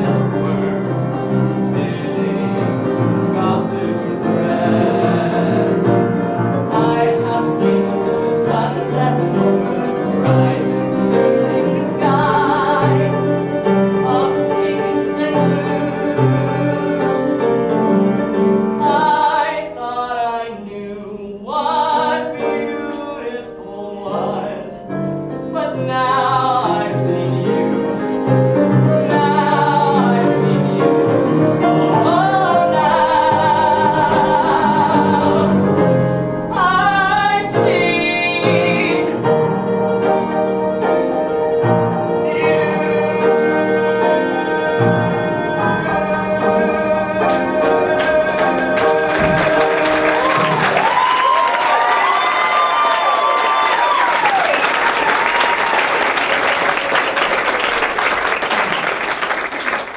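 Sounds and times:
people singing: 0.0 - 39.5, 41.8 - 51.1
instrumental accompaniment: 24.2 - 51.2.

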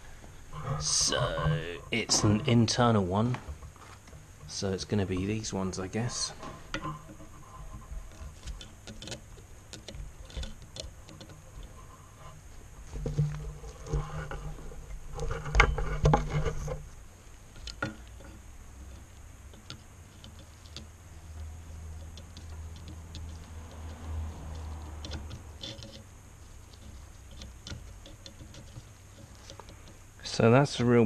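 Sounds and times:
pliers clicking and scraping on metal: 17.6 - 30.0.

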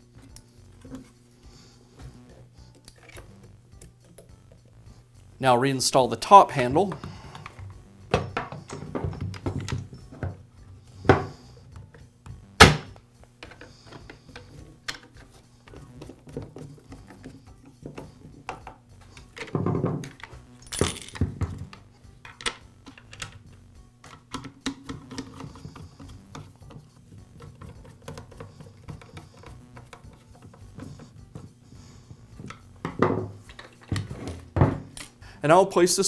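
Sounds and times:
plastic parts clicking and knocking: 6.9 - 10.4, 12.7 - 15.3, 16.0 - 20.4, 21.1 - 31.6.

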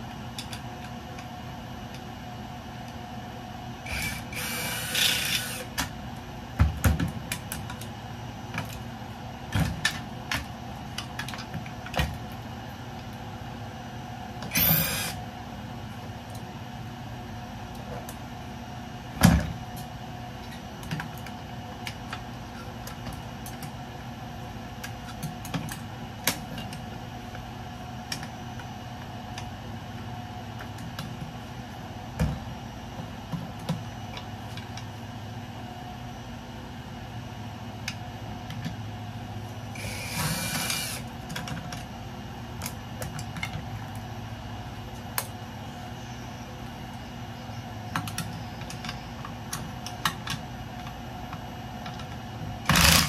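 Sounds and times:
steady background hum: 0.0 - 53.0.

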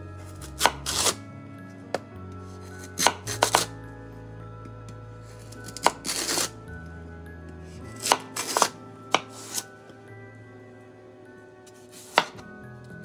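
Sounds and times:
soft background music: 0.0 - 13.0
knife slicing on cutting board: 0.4 - 1.2, 2.8 - 3.7, 5.4 - 6.5, 8.0 - 9.7, 11.7 - 12.4.

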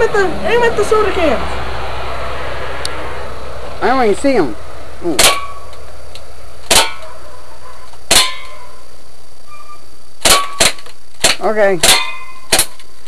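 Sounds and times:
airsoft gun shots: 5.1 - 5.7, 6.6 - 7.0, 8.1 - 8.6, 10.2 - 12.8
short ringing: 11.9 - 12.6.

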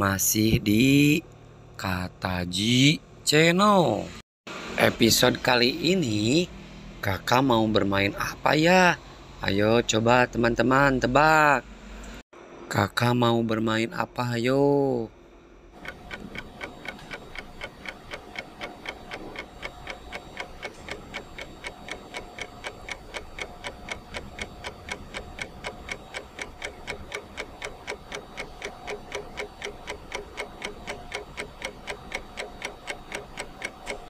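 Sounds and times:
faint steady hum: 4.8 - 34.0
rapid mechanical ticking: 15.7 - 34.0.

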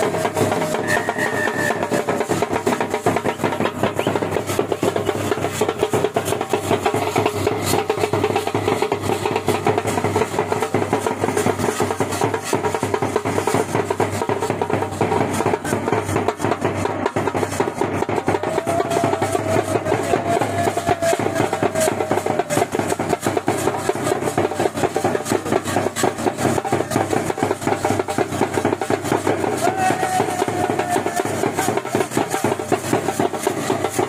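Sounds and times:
held high melodic note: 0.0 - 2.8
bass and snare drums beating: 0.0 - 34.0.

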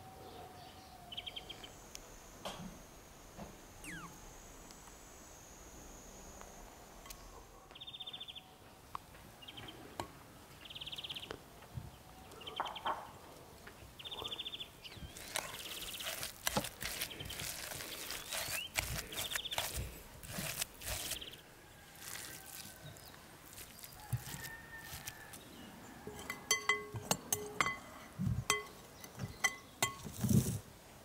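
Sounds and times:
high trilled chirps: 3.7 - 7.5
spoon scraping glass bowl: 15.2 - 21.3.

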